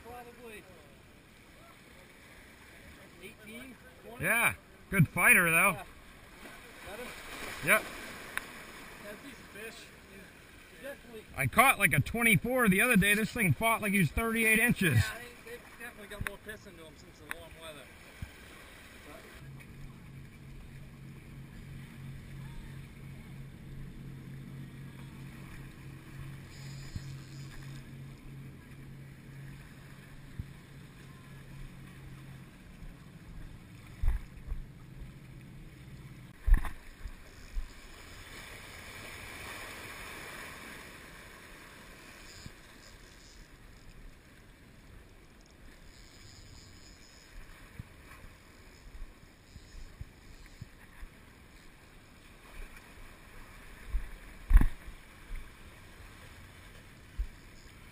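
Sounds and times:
boat engine droning: 0.0 - 57.9
seawater washing against rocks: 5.0 - 9.7.

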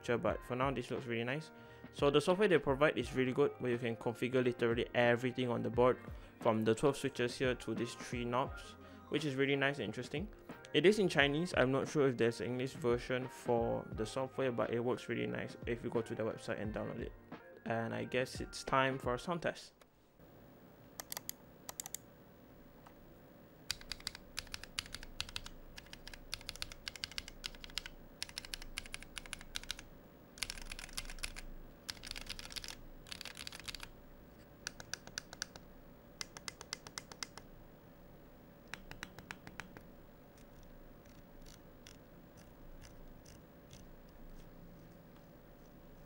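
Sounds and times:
mechanical keys clacking: 30.4 - 33.9.

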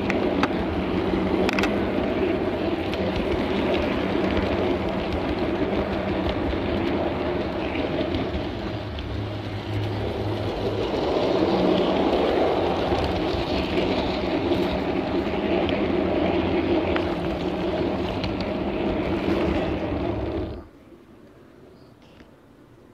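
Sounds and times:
train wheels rumbling on rails: 0.0 - 20.9.

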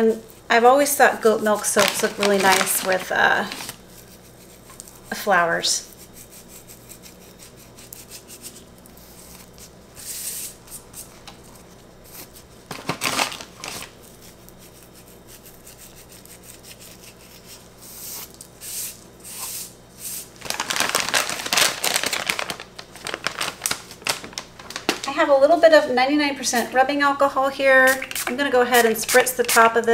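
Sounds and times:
plastic bag crinkling: 1.3 - 4.0, 12.7 - 14.2, 20.3 - 25.4.

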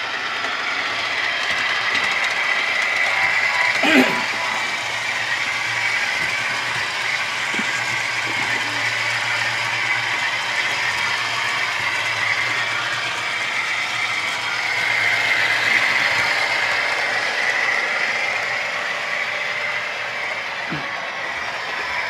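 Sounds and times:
model train whirring and clattering: 0.0 - 22.0.

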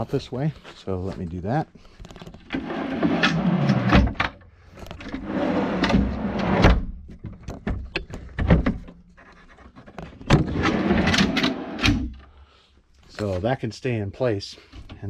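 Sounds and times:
drawer slides running: 2.5 - 4.2, 5.0 - 6.8, 10.4 - 12.0.

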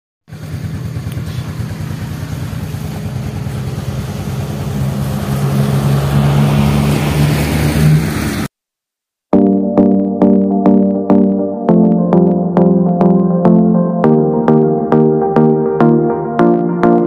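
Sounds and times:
vehicle engine running: 0.2 - 8.5.

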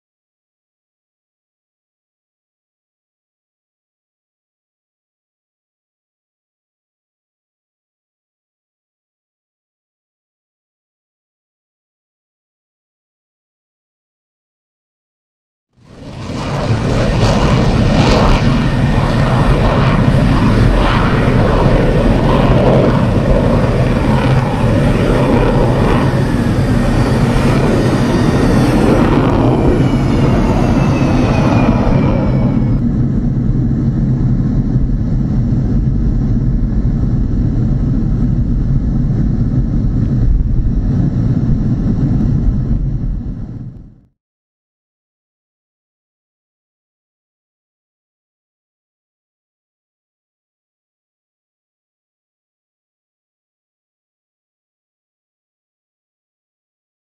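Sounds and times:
high jet whine falling in pitch: 15.8 - 44.1
jet engines roaring: 15.8 - 44.1.

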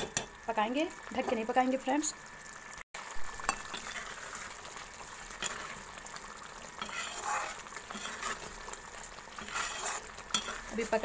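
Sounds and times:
curry sizzling in a pan: 0.0 - 11.0
ladle scraping a pan: 3.4 - 11.0.

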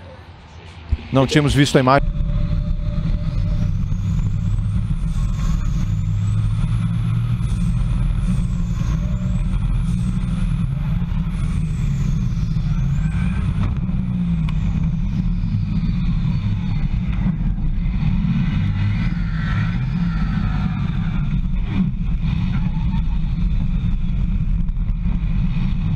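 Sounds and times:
truck engine drone: 0.0 - 25.9.

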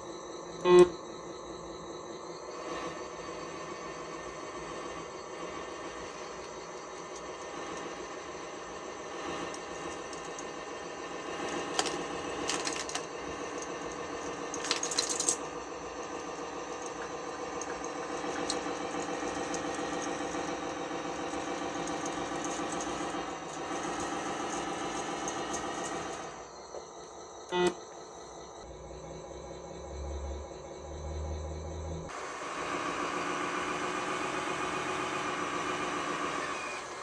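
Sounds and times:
toy truck motor whining: 0.0 - 1.8, 2.5 - 26.5, 27.4 - 27.8, 29.9 - 37.0
track links rattling and clicking: 6.0 - 8.0, 9.2 - 26.4.

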